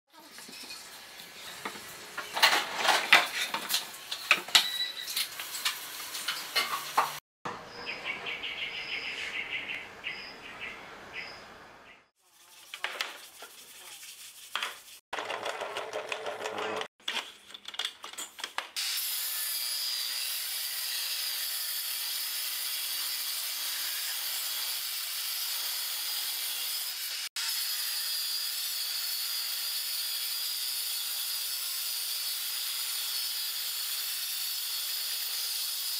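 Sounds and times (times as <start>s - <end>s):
wooden pieces knocking and rubbing: 14.4s - 18.8s
table saw cutting wood: 18.8s - 35.9s.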